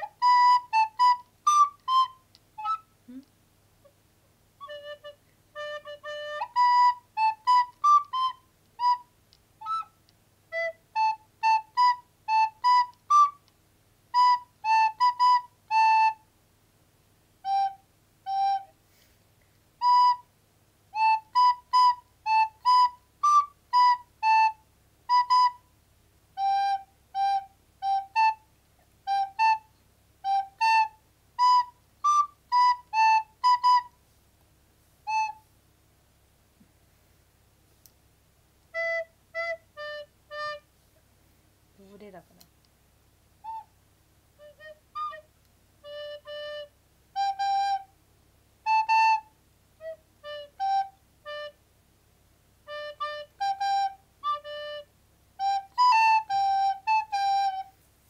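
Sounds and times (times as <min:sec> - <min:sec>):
recorder playing melody: 0:00.0 - 0:03.3, 0:04.6 - 0:13.5, 0:14.1 - 0:16.2, 0:17.4 - 0:18.8, 0:19.8 - 0:20.3, 0:20.9 - 0:25.7, 0:26.3 - 0:34.0, 0:35.0 - 0:35.5, 0:38.7 - 0:40.7, 0:43.4 - 0:43.8, 0:44.4 - 0:48.0, 0:48.6 - 0:51.6, 0:52.6 - 0:57.8.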